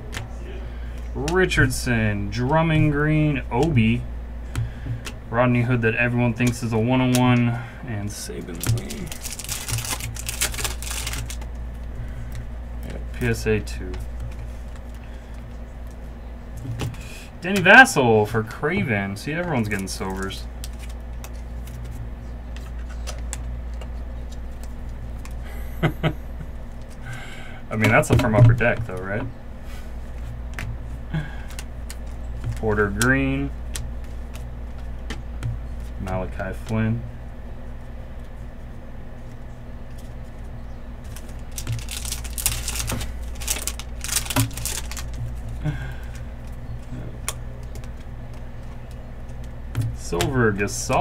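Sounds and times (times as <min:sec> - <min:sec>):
low hum: 0:00.0 - 0:51.0
plastic sleeve rustling: 0:08.1 - 0:11.6, 0:39.2 - 0:50.2
wrapper tearing and crinkling: 0:08.5 - 0:11.4, 0:41.1 - 0:45.2.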